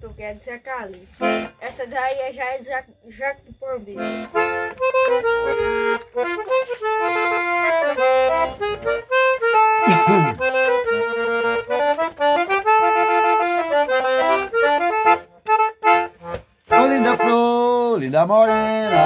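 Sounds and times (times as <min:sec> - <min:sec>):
button accordion playing lively melody: 0:01.1 - 0:01.9, 0:03.6 - 0:19.0.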